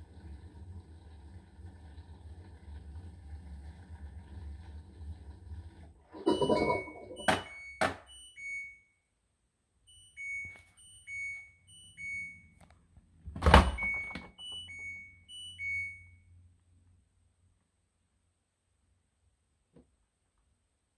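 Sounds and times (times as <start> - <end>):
washing machine buzzer tune: 6.2 - 9.0, 9.9 - 12.6, 13.5 - 16.4.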